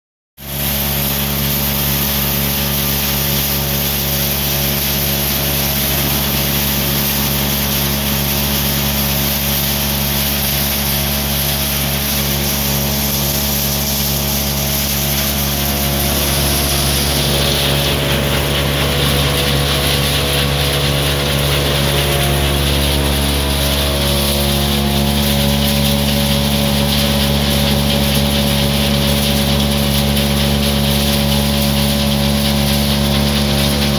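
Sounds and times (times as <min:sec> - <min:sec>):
electric motor hum: 0:00.4 - 0:33.9
shelling machine rushing noise: 0:00.4 - 0:33.9.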